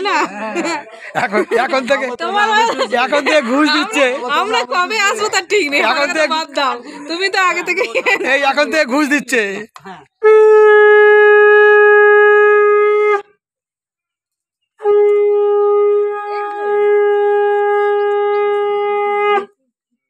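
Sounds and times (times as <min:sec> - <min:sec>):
conch shell blasts: 0:10.2 - 0:13.3, 0:14.8 - 0:19.5.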